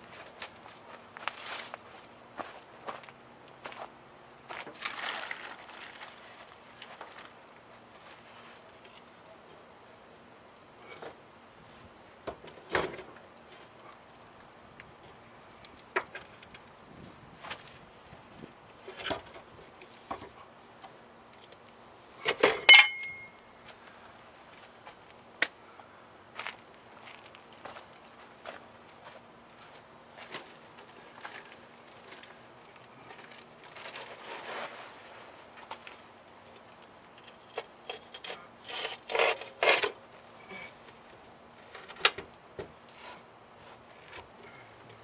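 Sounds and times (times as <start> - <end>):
metal tools clinking: 22.3 - 23.6
axle housing scraping: 37.2 - 40.0.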